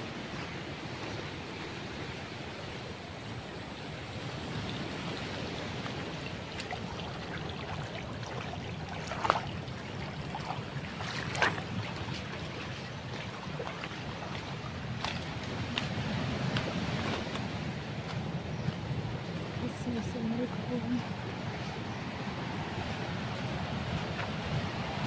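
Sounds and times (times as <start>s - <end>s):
stream running over gravel: 4.2s - 25.0s
splashing footsteps in water: 5.7s - 19.5s.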